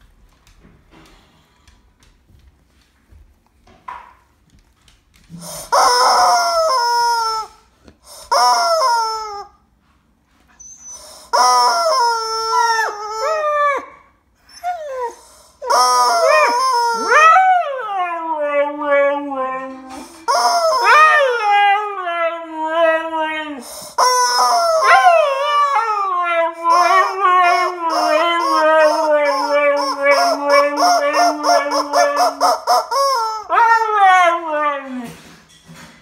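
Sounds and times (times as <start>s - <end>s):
rubber chicken toy squawking: 5.6s - 9.5s, 11.3s - 13.2s, 15.7s - 17.2s, 20.3s - 21.5s, 23.9s - 25.8s, 26.6s - 33.5s
dog howling: 24.4s - 35.0s.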